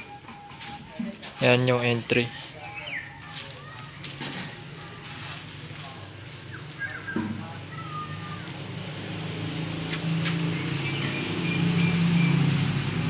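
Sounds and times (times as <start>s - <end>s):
vehicle engine hum: 0.0s - 13.0s
bird chirps: 10.5s - 12.6s.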